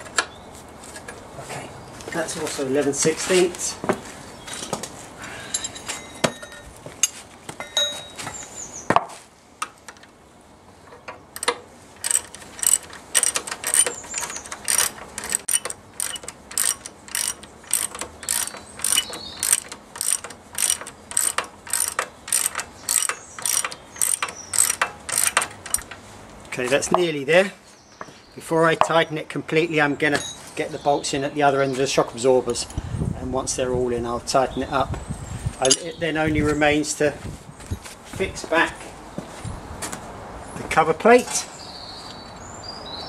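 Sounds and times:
metal clinks: 5.4s - 8.3s
ratchet wrench clicking: 11.4s - 26.0s.

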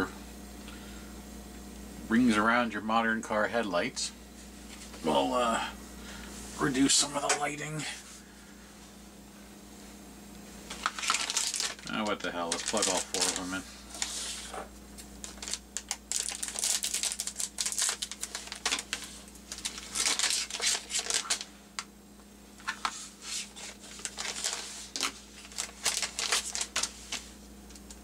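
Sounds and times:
plastic bag crinkling: 10.7s - 14.5s, 15.2s - 21.9s, 22.6s - 28.0s.

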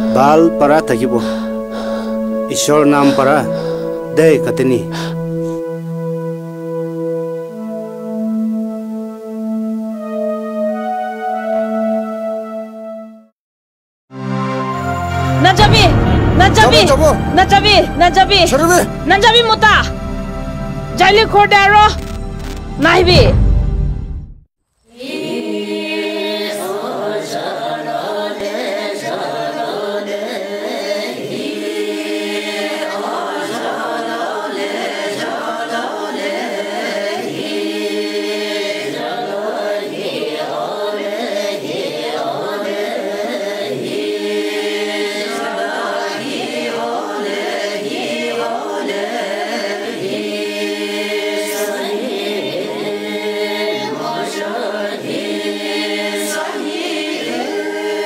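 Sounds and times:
group chanting a choral song: 0.0s - 9.0s, 24.9s - 58.0s.

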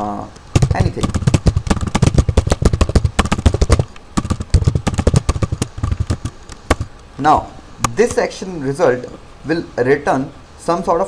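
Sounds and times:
typing on computer keyboard: 0.6s - 6.9s.

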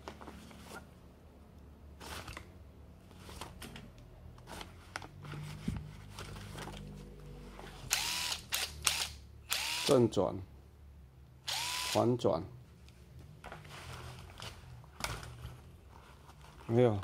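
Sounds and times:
screwdriver motor whirring: 7.9s - 10.0s, 11.4s - 12.0s.

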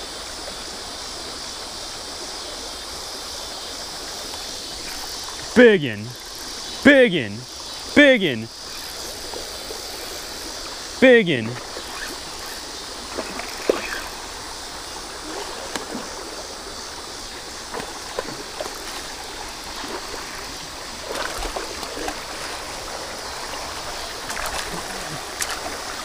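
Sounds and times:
water trickling in ditch: 8.5s - 26.0s.

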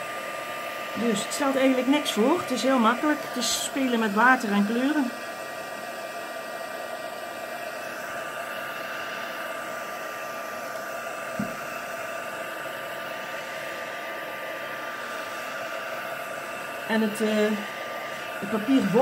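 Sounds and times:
heat gun blowing: 0.0s - 19.0s
soft knock: 11.4s - 11.6s.

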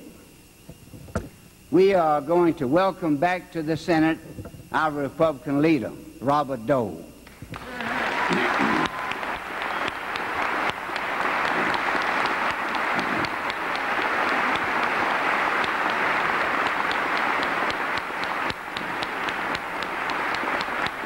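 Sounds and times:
crowd applauding: 7.5s - 21.0s.

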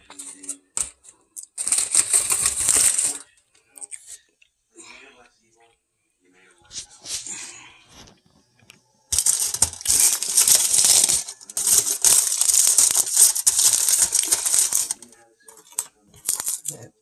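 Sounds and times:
aluminum foil crinkling: 0.0s - 3.3s, 9.1s - 16.9s.

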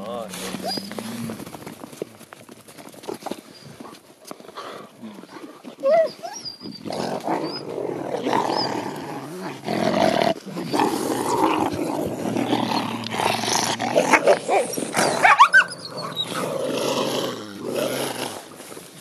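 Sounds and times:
wolves growling: 0.0s - 2.1s, 3.0s - 19.0s
wolves whining and yelping: 0.4s - 1.1s, 4.6s - 9.6s, 11.3s - 17.1s.

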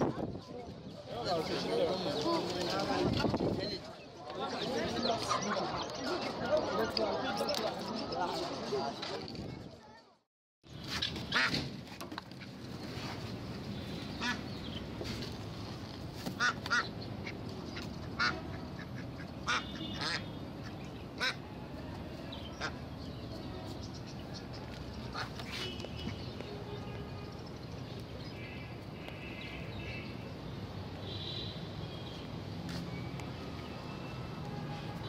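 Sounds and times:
background hubbub: 0.0s - 35.0s
ducks quacking: 14.2s - 14.4s, 16.4s - 20.3s, 21.2s - 21.4s, 25.1s - 25.4s.

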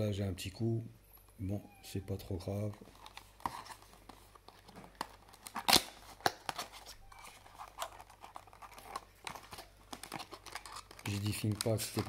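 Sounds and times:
cardboard rustling and scraping: 2.6s - 12.0s.

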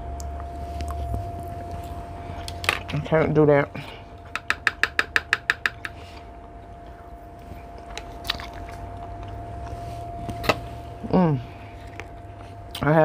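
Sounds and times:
faint steady hum: 0.0s - 13.0s
chewing food: 0.2s - 2.6s, 5.7s - 10.6s, 11.6s - 12.9s.

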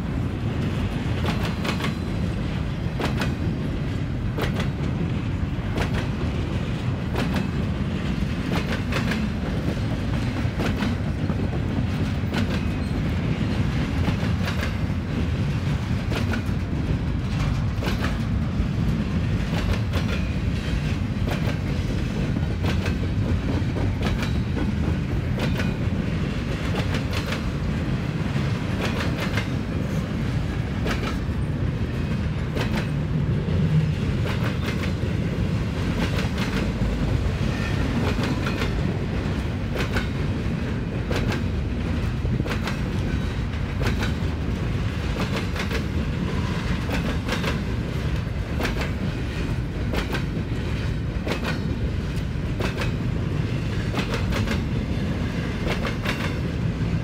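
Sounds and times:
train low rumble: 0.0s - 57.0s
train wheels clacking: 0.4s - 56.7s.

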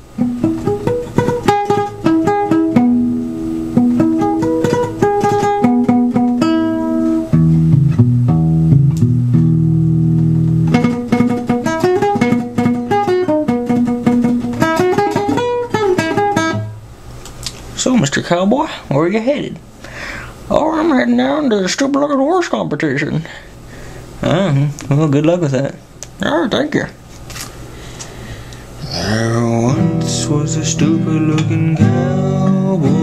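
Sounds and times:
classical guitar: 0.1s - 16.8s, 29.2s - 33.0s.

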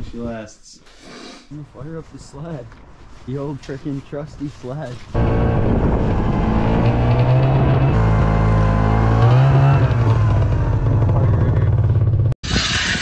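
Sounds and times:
snowmobile engine revving: 5.2s - 11.8s.

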